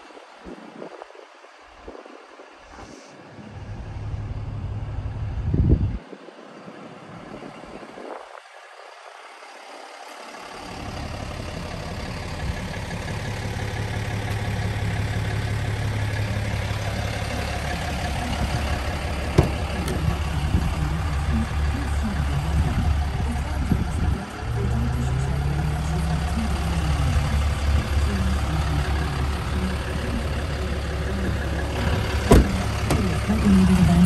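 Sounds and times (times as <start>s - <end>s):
diesel engine idling: 0.0s - 34.0s
wind hitting microphone: 4.6s - 8.6s.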